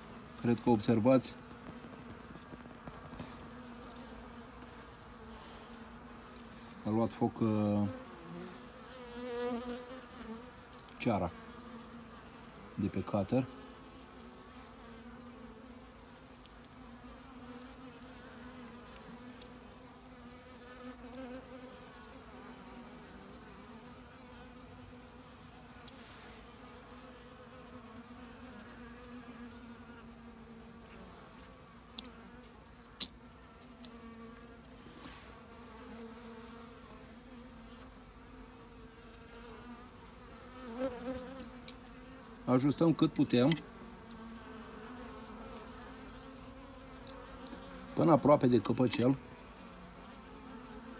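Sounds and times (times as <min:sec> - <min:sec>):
bees buzzing: 0:00.0 - 0:50.9.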